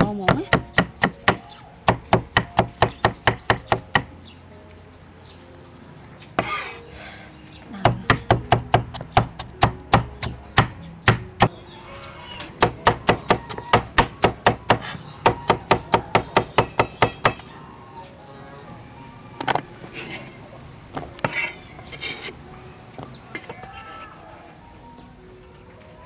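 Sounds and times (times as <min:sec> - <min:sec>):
cleaver chopping on wooden board: 0:00.2 - 0:04.1, 0:07.9 - 0:11.5, 0:12.6 - 0:17.4.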